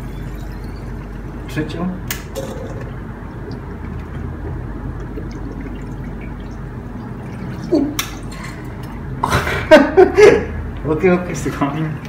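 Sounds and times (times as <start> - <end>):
pump low hum: 0.0 - 10.0
water pouring and dripping: 2.4 - 9.1.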